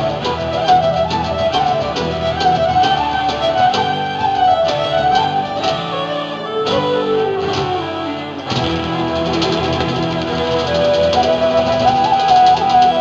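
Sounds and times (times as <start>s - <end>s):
fiddle melody: 0.0s - 13.0s
folk band playing live: 0.0s - 13.0s.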